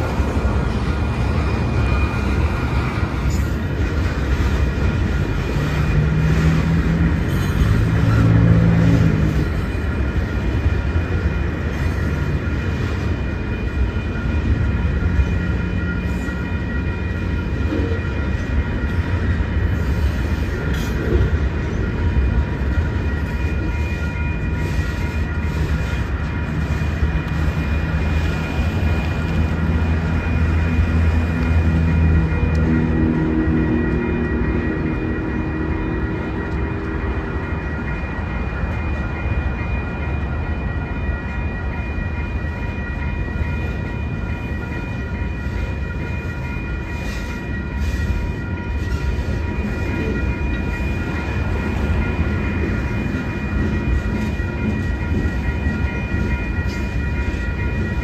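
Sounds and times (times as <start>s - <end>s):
train wheels clicking: 0.0s - 39.1s
train wheels rumbling on rail: 0.0s - 58.0s.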